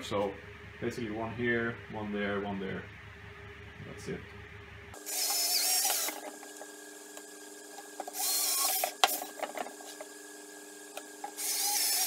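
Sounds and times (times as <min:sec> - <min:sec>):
cordless drill whining: 0:05.0 - 0:06.3, 0:08.1 - 0:09.4, 0:11.4 - 0:12.0.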